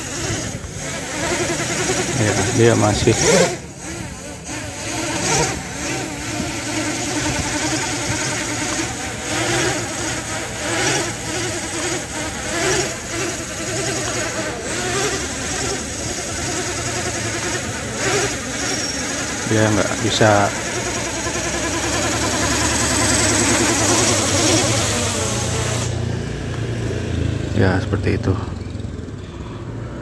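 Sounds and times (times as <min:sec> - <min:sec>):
drone motors buzzing whine: 0:00.0 - 0:27.4.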